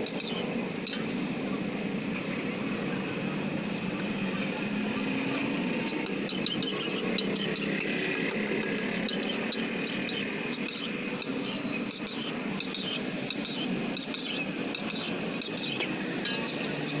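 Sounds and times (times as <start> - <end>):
gas flame rushing: 0.0 - 17.0
steady sizzling: 0.0 - 17.0
metal spatula scraping wok: 5.8 - 17.0.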